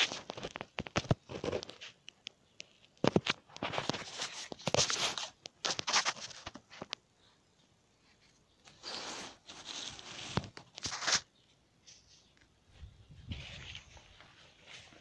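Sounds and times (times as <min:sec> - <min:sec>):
leaves and stems crackling: 0:00.0 - 0:07.0, 0:08.0 - 0:12.5.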